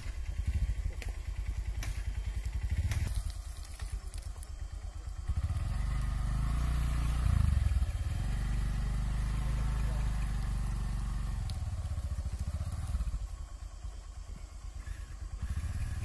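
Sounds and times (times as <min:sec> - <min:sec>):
motorcycle engine putter: 0:00.0 - 0:05.4.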